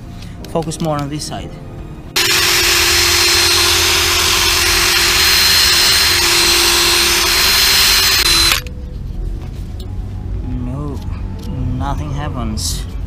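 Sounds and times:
cordless drill whining: 0:02.2 - 0:08.7.

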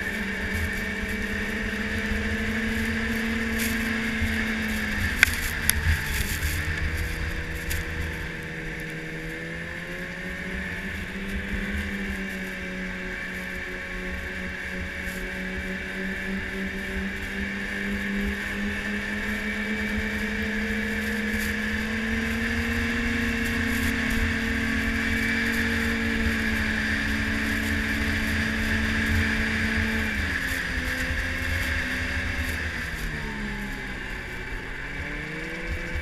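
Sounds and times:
snowmobile engine running: 0:00.0 - 0:36.0.

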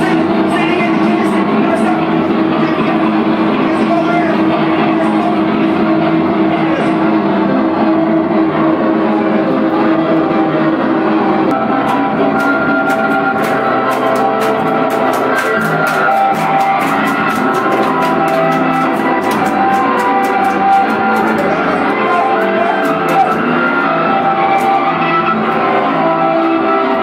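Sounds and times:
rock band playing: 0:11.5 - 0:27.0.

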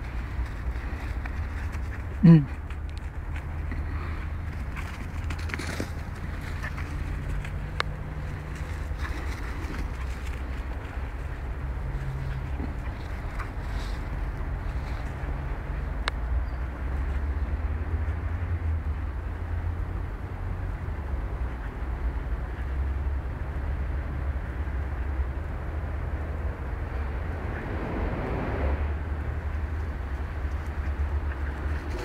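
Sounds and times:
steady low outdoor rumble: 0:00.0 - 0:32.0.

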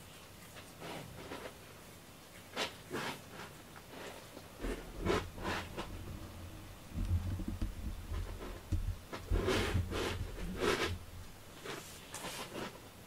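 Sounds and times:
cat brushing against cardboard: 0:00.5 - 0:01.7, 0:02.4 - 0:12.9
low cardboard rumble: 0:04.5 - 0:11.8.

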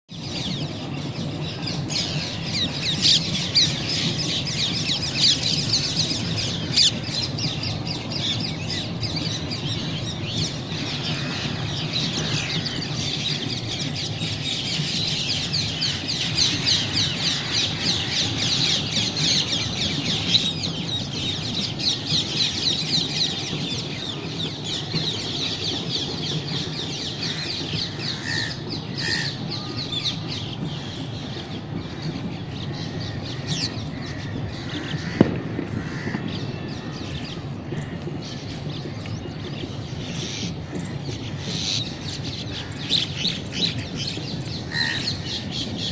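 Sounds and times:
many birds chirping: 0:00.1 - 0:45.9.

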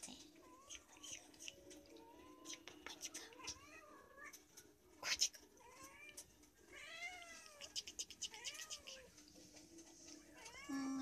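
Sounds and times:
cat meowing: 0:05.6 - 0:09.1, 0:10.3 - 0:11.0.

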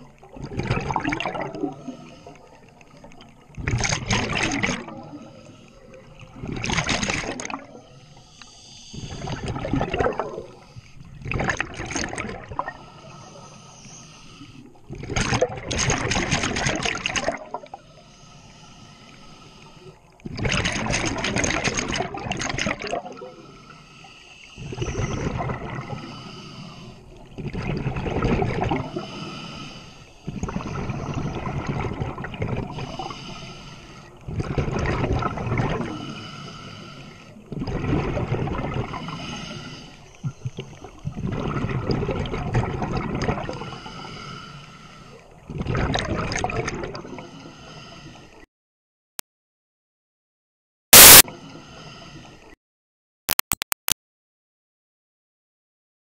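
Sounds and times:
loud bubbling exhalations underwater: 0:00.4 - 0:01.9, 0:03.6 - 0:05.1, 0:09.2 - 0:10.5, 0:14.9 - 0:17.7, 0:20.3 - 0:23.3, 0:24.6 - 0:25.9, 0:27.4 - 0:29.0, 0:34.3 - 0:35.9, 0:37.5 - 0:39.0, 0:41.2 - 0:43.6, 0:45.5 - 0:47.2
hissing regulator inhalations: 0:07.8 - 0:09.5, 0:12.7 - 0:14.8, 0:17.7 - 0:20.2, 0:23.3 - 0:27.3, 0:28.8 - 0:31.4, 0:32.7 - 0:34.2, 0:35.9 - 0:37.4.

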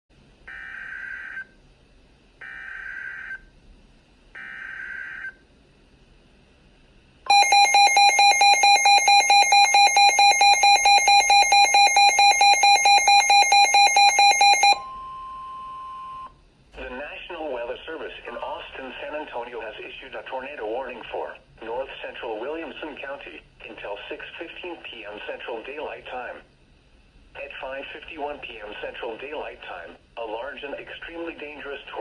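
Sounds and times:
pulsing warning alarm beeps: 0:07.3 - 0:16.3.

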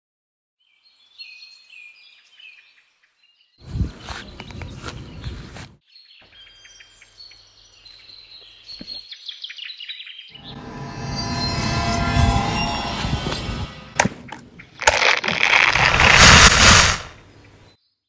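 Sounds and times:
birds chirping: 0:00.6 - 0:10.8
rustling and crunching: 0:14.2 - 0:17.2.

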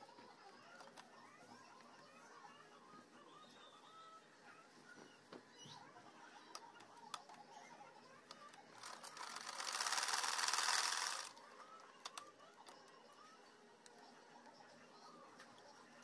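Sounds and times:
treadle sewing machine stitching: 0:08.8 - 0:11.3.

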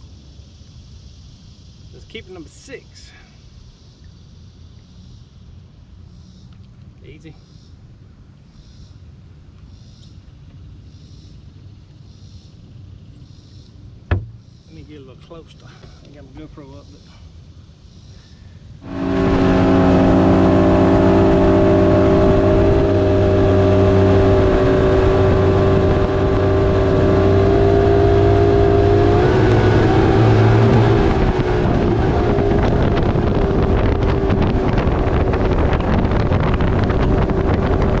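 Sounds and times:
wind: 0:00.0 - 0:38.0
outboard motor running: 0:14.0 - 0:14.6, 0:18.8 - 0:38.0
water rushing: 0:18.8 - 0:36.3.

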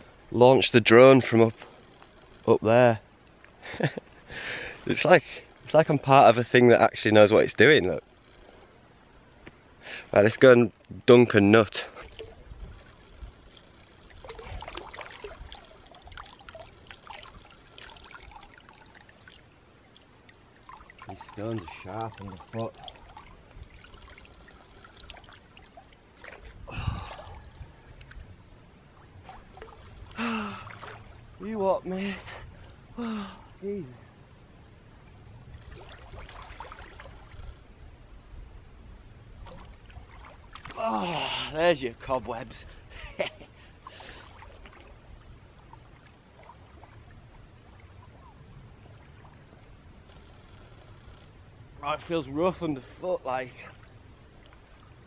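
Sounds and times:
low steady rumble: 0:00.0 - 0:55.0
water splashing around legs: 0:14.0 - 0:27.8, 0:29.2 - 0:31.2, 0:35.6 - 0:37.4, 0:39.4 - 0:41.1.

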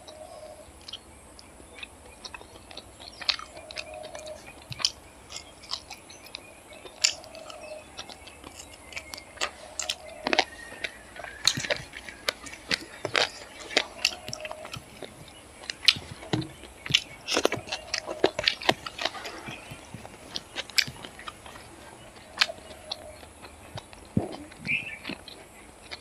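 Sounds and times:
person chewing wetly: 0:00.0 - 0:26.0
lip smacks: 0:00.8 - 0:26.0
sharp mouth clicks: 0:00.8 - 0:26.0.

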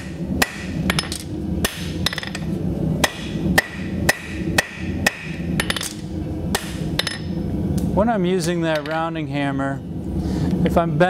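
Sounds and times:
hammer striking horseshoe on anvil: 0:00.0 - 0:02.4, 0:03.0 - 0:07.3.

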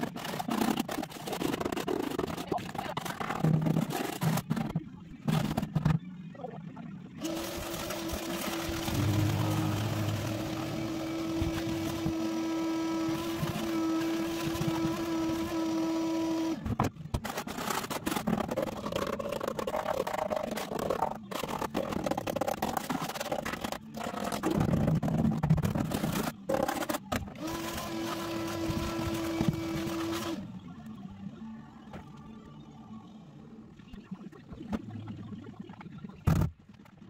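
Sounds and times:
shop vacuum humming: 0:08.7 - 0:16.6.

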